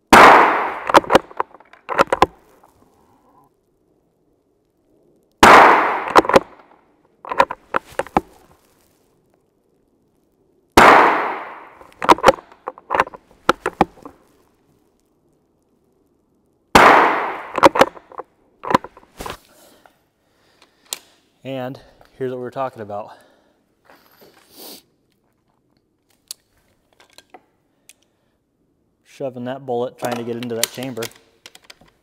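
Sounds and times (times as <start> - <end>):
rifle shots with echo: 0.1 - 2.1, 5.4 - 6.6, 10.8 - 12.4, 16.8 - 18.0.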